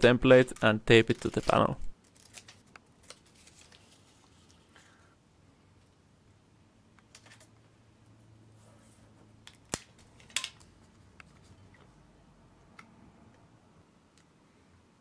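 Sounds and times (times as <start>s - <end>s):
paper and tape rustling: 0.5s - 4.8s.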